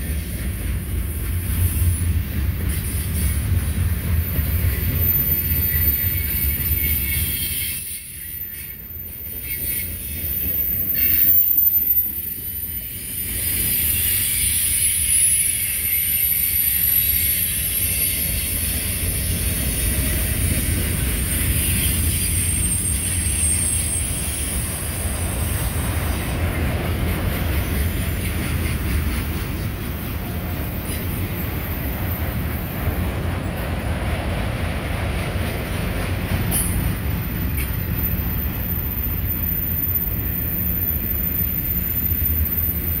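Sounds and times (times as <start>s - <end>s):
steel wheels rumbling on rail: 0.0s - 43.0s
high wheel squeals: 4.2s - 20.1s, 21.2s - 25.0s, 37.3s - 43.0s.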